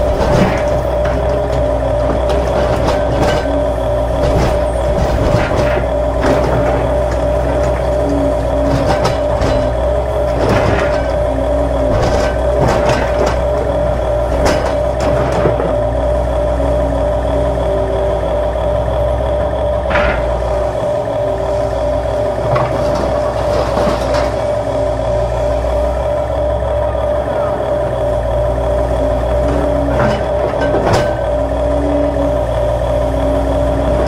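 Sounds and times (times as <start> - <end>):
toy excavator electric motors whining: 0.0 - 34.0.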